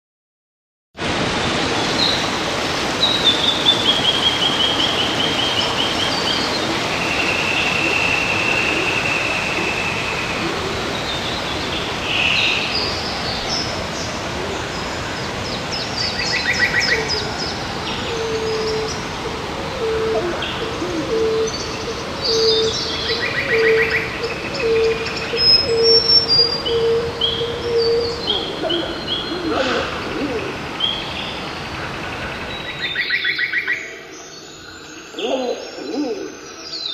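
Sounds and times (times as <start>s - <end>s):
waterfall rushing: 1.0s - 33.0s
low cooing bird: 6.3s - 12.6s, 17.9s - 30.7s, 35.1s - 36.4s.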